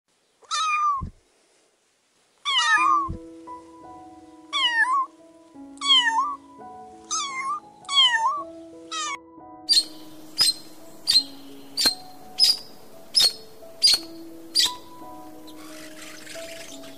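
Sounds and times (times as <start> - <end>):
kitten meowing: 0.4 - 1.1, 2.5 - 3.2, 4.5 - 5.1, 5.8 - 6.4, 7.1 - 11.2
background music with held notes: 2.6 - 16.9.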